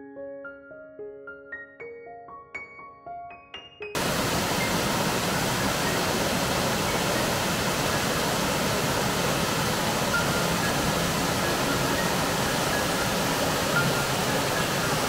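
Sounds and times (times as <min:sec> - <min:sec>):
waterfall rushing: 0:04.0 - 0:15.0.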